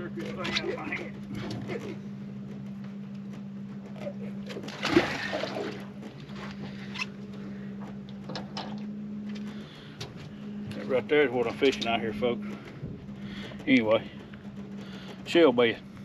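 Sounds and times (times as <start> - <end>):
steady low hum: 0.0 - 16.0
fish splashing in water: 4.6 - 6.9.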